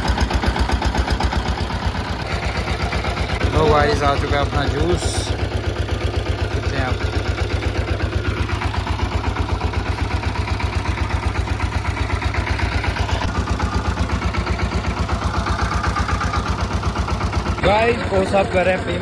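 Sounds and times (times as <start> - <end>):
engine idling with rapid thumping: 0.0 - 19.0.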